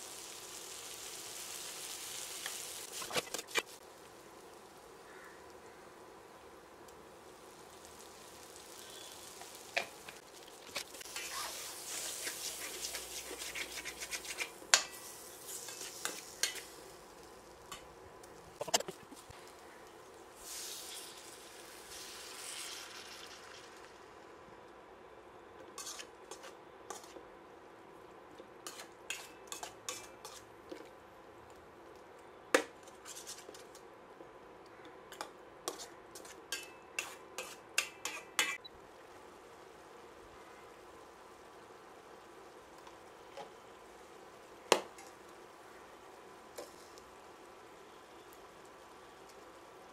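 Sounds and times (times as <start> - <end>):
food sizzling: 0.0 - 31.0, 35.1 - 49.9
metal spoon scraping a steel pan: 25.8 - 27.1, 35.7 - 38.6.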